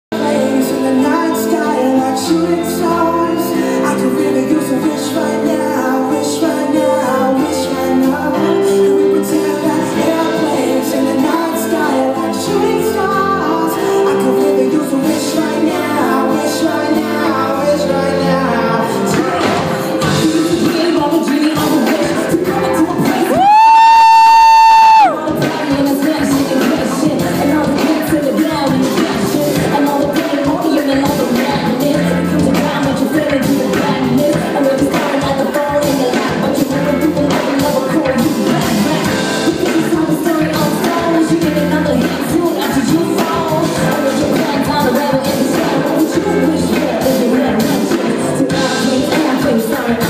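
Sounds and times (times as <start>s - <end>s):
live band playing pop: 0.1s - 50.0s
woman singing into microphone: 0.2s - 50.0s.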